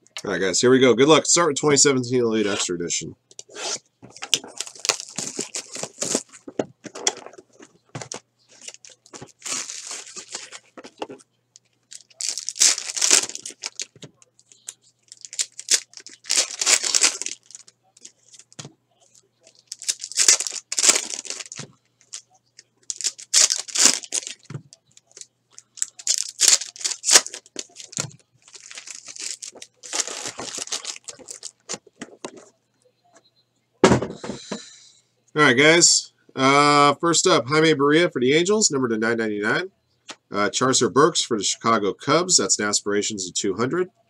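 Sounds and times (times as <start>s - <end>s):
foil wrappers tearing and crinkling: 4.5s - 6.4s, 8.6s - 10.7s, 11.9s - 13.9s, 15.1s - 18.5s, 19.5s - 22.2s, 22.9s - 31.8s.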